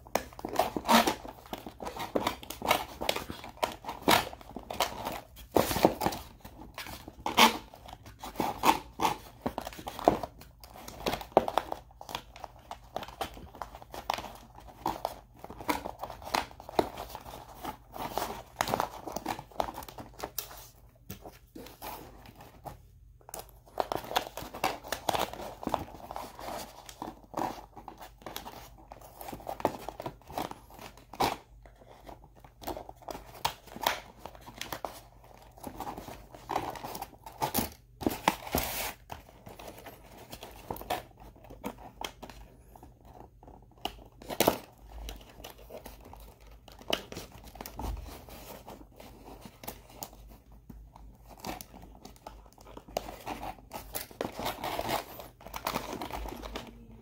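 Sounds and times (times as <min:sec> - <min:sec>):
plastic packaging crinkling: 0:51.0 - 0:57.0.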